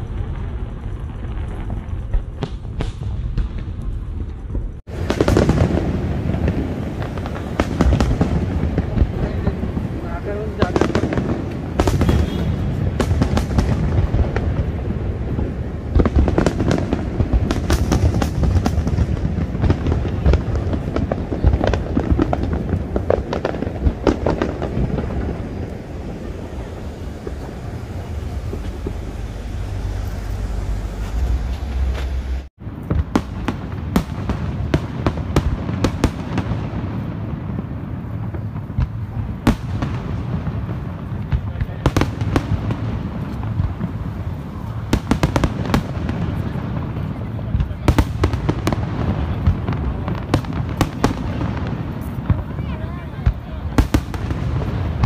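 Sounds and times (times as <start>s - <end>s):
fireworks booming and crackling: 0.0s - 55.0s
low rumble: 17.0s - 32.9s.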